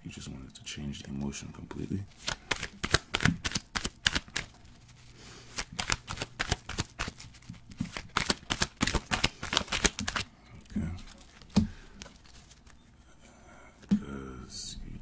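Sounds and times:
cards being shuffled: 1.8s - 12.8s.

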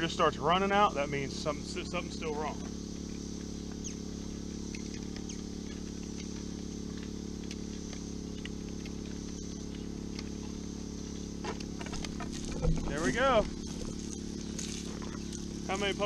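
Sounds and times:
insect chorus buzzing: 0.0s - 16.0s
low steady hum: 0.0s - 16.0s
faint ticks: 2.9s - 12.8s.

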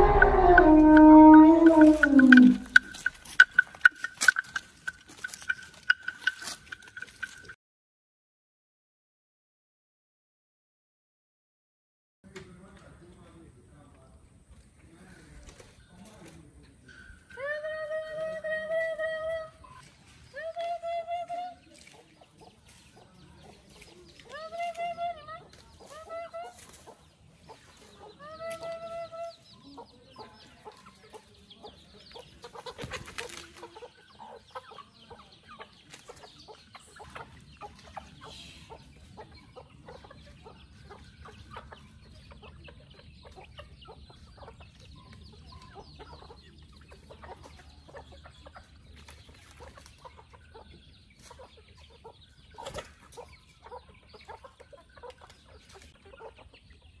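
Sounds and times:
drawn-out chicken call: 0.0s - 7.3s
chickens clucking: 0.0s - 7.5s, 14.8s - 57.0s.

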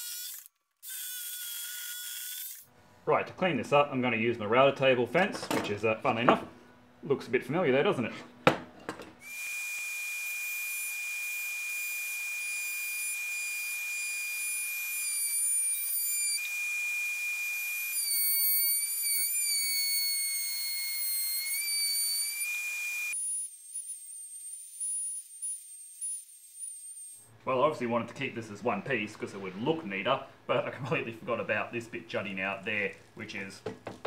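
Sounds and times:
router high-pitched whine: 9.3s - 27.2s.

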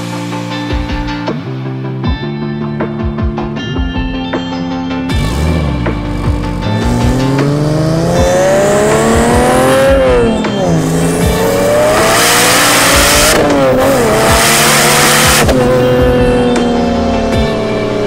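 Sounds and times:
car engine accelerating: 5.1s - 18.0s.

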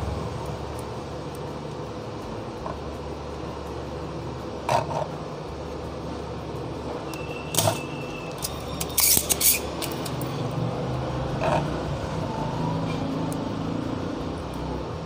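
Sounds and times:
steady low hum: 0.0s - 15.0s
desoldering pump clicking and snapping: 0.3s - 3.8s, 7.1s - 11.4s.

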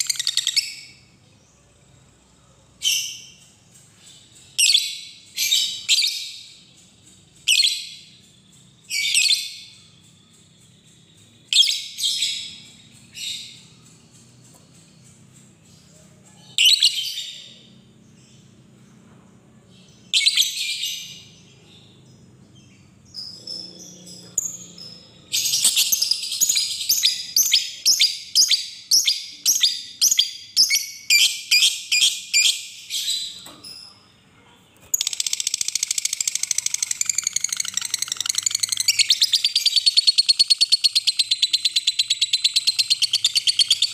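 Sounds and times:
lovebird shrill chattering: 34.9s - 43.9s.

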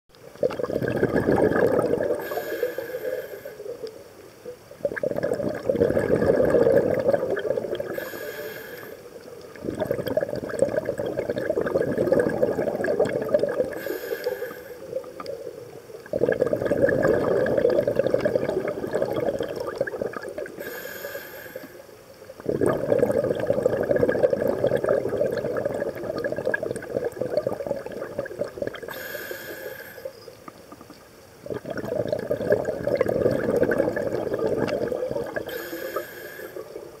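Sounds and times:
exhaled bubbles rushing: 0.4s - 3.8s, 4.8s - 8.0s, 9.2s - 13.9s, 14.8s - 20.6s, 22.3s - 29.0s, 31.4s - 37.0s
regulator hiss on inhale: 2.1s - 4.0s, 7.8s - 9.3s, 13.7s - 15.1s, 20.5s - 22.0s, 28.8s - 30.4s, 35.4s - 37.0s.

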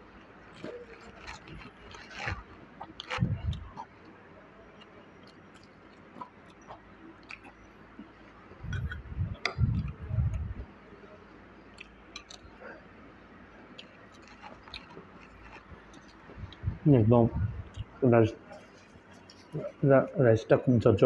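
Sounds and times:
person chewing: 0.5s - 4.1s, 4.7s - 10.5s, 11.7s - 12.8s, 13.7s - 16.8s.

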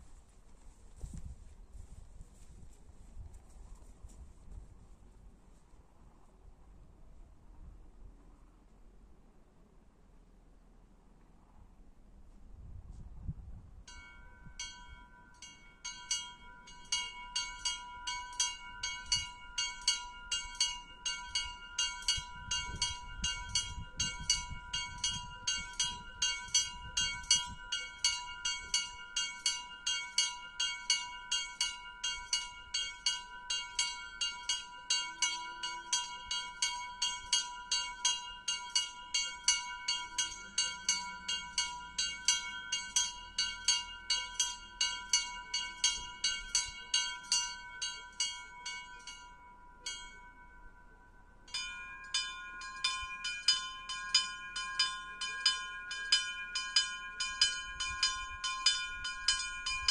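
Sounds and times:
small bells pealing: 13.9s - 59.9s.

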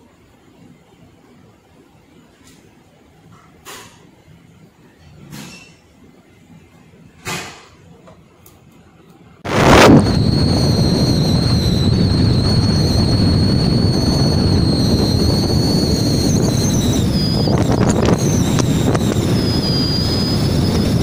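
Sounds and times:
high wavering whistle: 9.5s - 21.0s
wind buffeting microphone: 9.5s - 21.0s.

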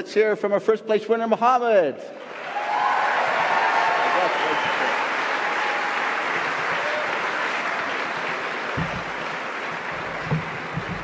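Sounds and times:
audience applauding: 2.2s - 11.0s
dull thumps: 8.7s - 11.0s.

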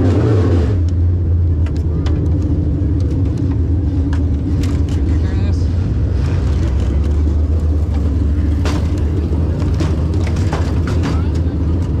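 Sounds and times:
race car engine idling: 0.8s - 12.0s
sharp clicks and knocks: 6.5s - 12.0s.

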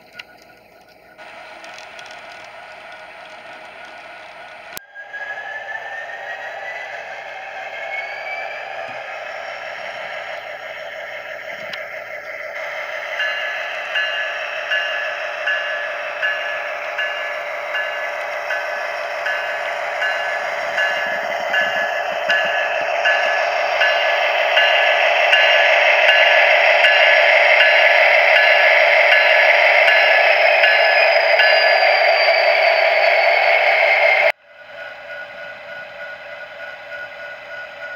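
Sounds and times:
model train wheels clattering: 0.0s - 4.8s
track clicks: 0.0s - 4.9s, 5.7s - 37.9s
model train motor whir: 1.2s - 31.8s.

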